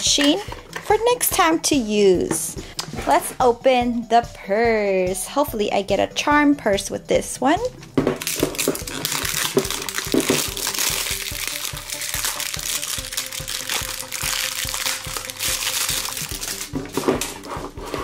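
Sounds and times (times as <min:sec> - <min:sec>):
soft background music: 0:00.0 - 0:18.0
plastic packaging crinkling: 0:08.2 - 0:18.0.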